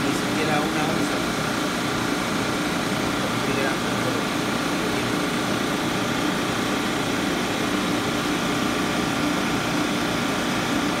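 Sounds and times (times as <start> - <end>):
refrigeration equipment humming: 0.0 - 11.0.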